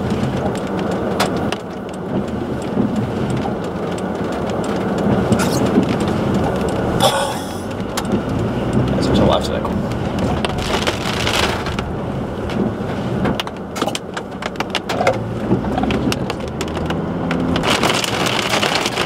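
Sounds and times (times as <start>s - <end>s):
rain drumming on a car: 0.0s - 19.0s
raindrop clicks: 0.0s - 19.0s
low rumble: 5.1s - 13.8s.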